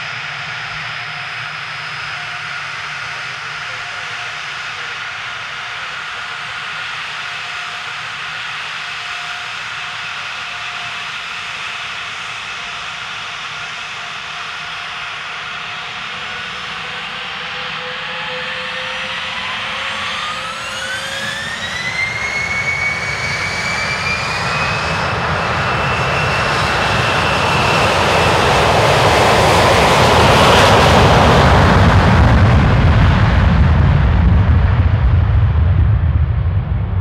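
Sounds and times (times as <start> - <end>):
jet engine roar: 0.0 - 37.0
turbine whine: 0.0 - 37.0
deep rumble: 29.1 - 37.0.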